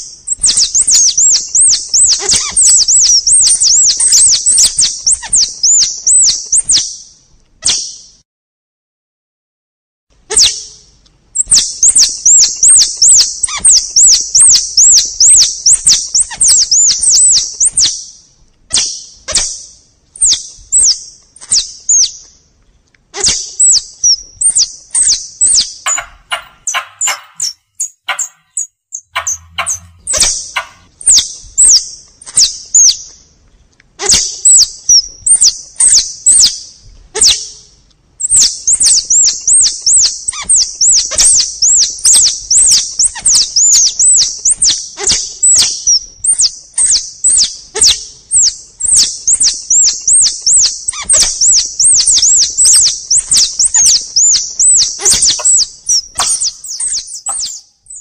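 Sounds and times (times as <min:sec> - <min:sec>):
high-pitched chattering chirps: 0:00.0 - 0:06.8, 0:11.4 - 0:17.9, 0:23.2 - 0:31.8, 0:38.2 - 0:58.0.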